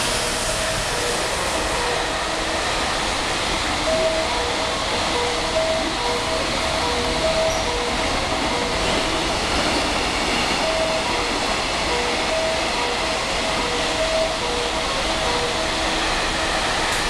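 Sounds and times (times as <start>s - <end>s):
train wheels rumbling on rails: 0.0s - 17.0s
short beeping tones: 3.8s - 9.0s, 10.6s - 15.7s.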